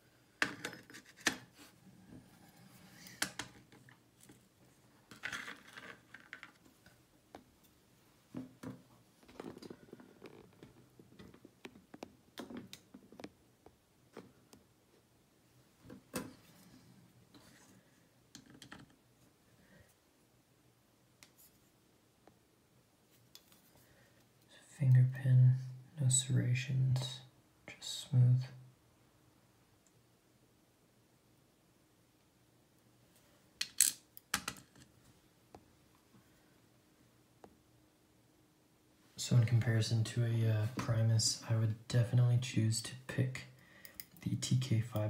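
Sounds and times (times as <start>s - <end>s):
small metal parts clicking and clinking: 33.6s - 34.9s.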